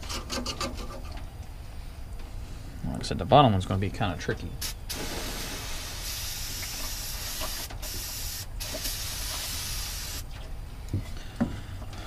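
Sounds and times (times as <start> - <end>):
aerosol spray can hissing: 4.6 - 10.2.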